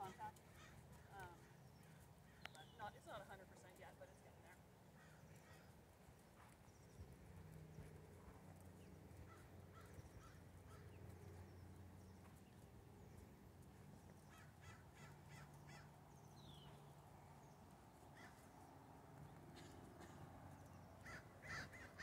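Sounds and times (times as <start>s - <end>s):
faint bird calls: 0.0s - 3.1s, 4.9s - 5.8s, 9.2s - 11.7s, 14.1s - 18.8s, 19.5s - 22.0s
faint low hum: 0.0s - 22.0s.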